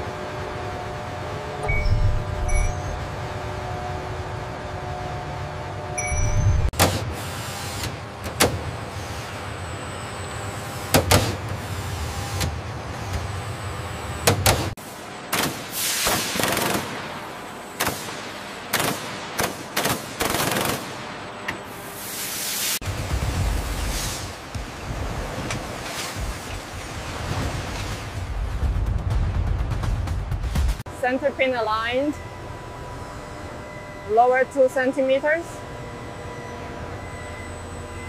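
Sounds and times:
machinery low hum: 0:00.0 - 0:15.3, 0:22.8 - 0:38.0
sharp machine knock: 0:06.7 - 0:07.1.

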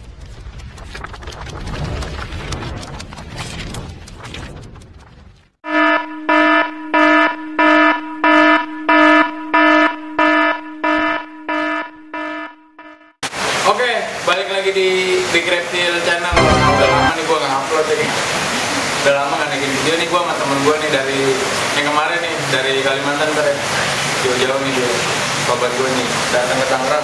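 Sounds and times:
harsh electronic alarm beeps: 0:05.7 - 0:13.2.

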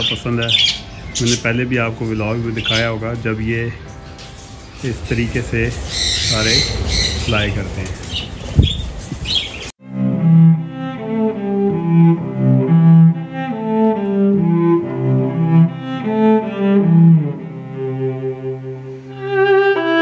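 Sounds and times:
budgerigars chirping: 0:00.0 - 0:03.4, 0:04.7 - 0:09.7
bowed string melody: 0:00.0 - 0:08.5, 0:09.8 - 0:20.0.

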